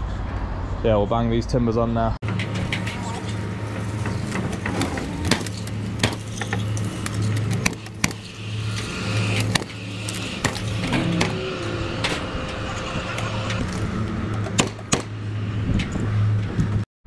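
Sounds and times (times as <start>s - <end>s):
steady low hum: 2.2s - 16.5s
nail gun firing: 14.6s - 15.1s.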